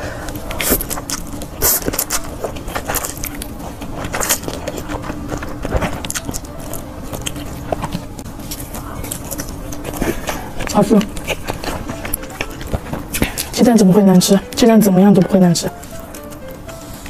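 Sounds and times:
person slurping and chewing noodles: 0.0 - 13.6
faint steady hum: 0.0 - 17.0.

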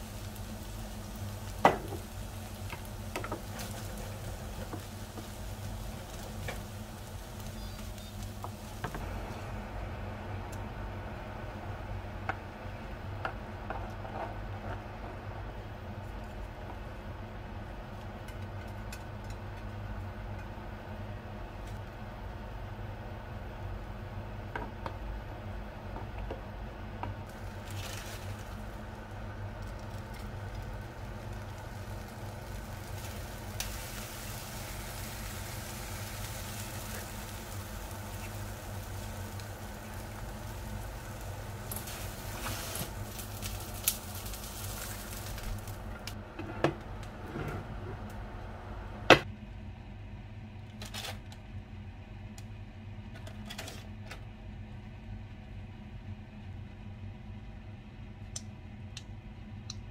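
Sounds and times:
eggs sizzling in a pan: 0.0 - 10.2, 27.2 - 46.2.

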